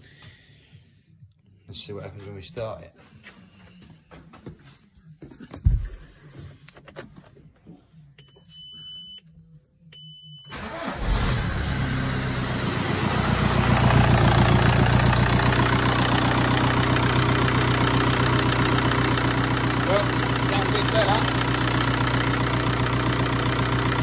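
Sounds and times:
diesel engine starting and idling: 10.5 - 24.0.

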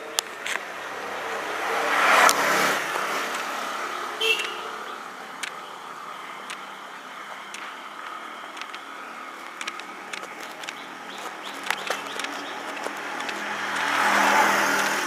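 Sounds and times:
distant traffic hum: 0.0 - 15.0
light clicks: 5.3 - 5.6, 6.4 - 6.7, 7.3 - 14.0.

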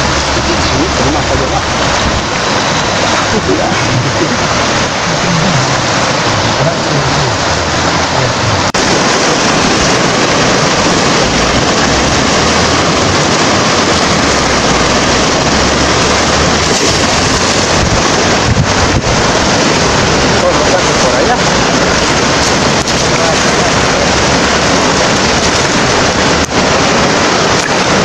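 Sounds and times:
river rushing over rapids: 0.0 - 28.0.

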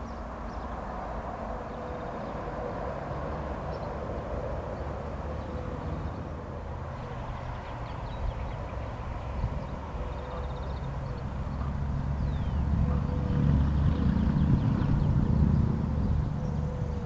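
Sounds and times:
outdoor rumble and hum: 0.0 - 17.0
small birds chirping: 4.8 - 17.0.

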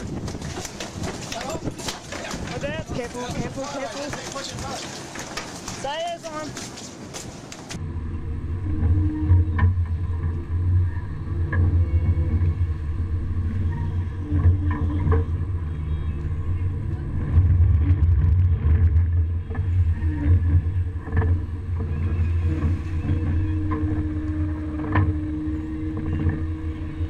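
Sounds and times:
boat engine droning: 7.0 - 27.0.

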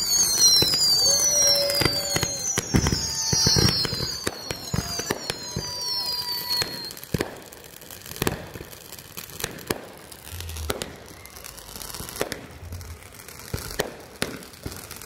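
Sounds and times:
firework bangs: 0.0 - 15.0
firework crackling: 0.0 - 15.0.

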